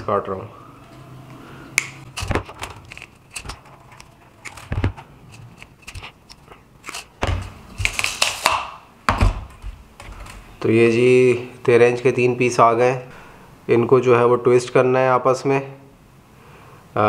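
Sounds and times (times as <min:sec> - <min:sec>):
coil wire scraping and rattling: 0:02.1 - 0:07.1.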